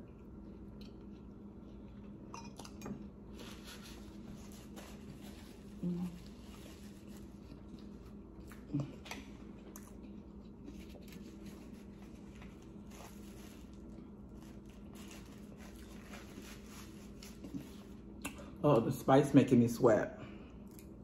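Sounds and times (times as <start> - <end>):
steady low hum: 0.0 - 21.0
paper napkin rustling: 3.3 - 7.7, 10.6 - 18.0.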